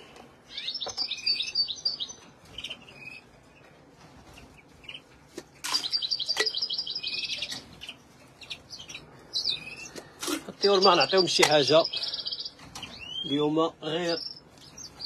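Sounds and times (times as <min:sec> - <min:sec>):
finches twittering: 0:00.5 - 0:03.3, 0:05.8 - 0:15.0
loud fast bird trill: 0:10.6 - 0:13.4.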